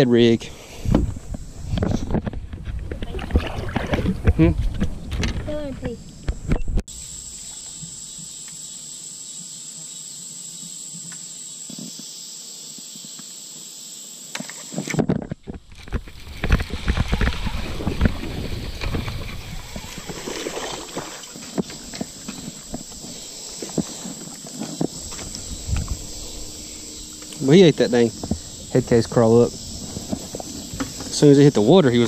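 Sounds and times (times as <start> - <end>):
water splashes: 2.8 - 4.5, 15.7 - 23.0
rustles: 4.0 - 32.0
high buzz of insects: 5.5 - 32.0.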